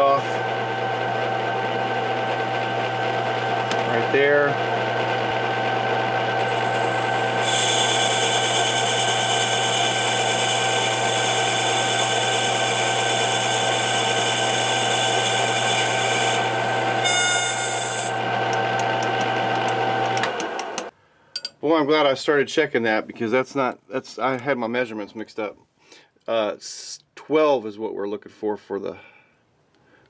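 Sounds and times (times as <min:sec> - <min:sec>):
lathe motor hum: 0:00.0 - 0:20.9.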